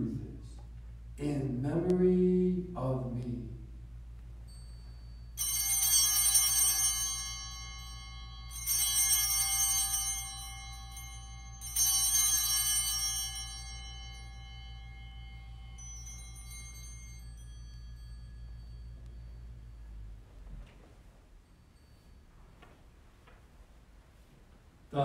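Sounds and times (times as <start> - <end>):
small bells ringing: 4.2 - 23.2.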